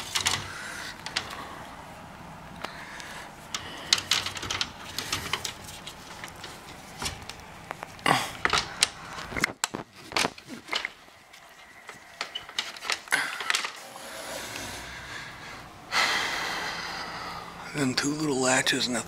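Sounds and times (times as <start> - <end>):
plastic air filter clicks and rattles: 0.0 - 1.4, 3.5 - 11.0.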